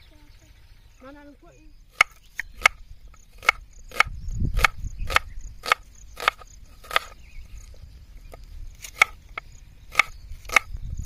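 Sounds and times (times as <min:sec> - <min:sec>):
knife chopping on wooden board: 0:03.4 - 0:07.2.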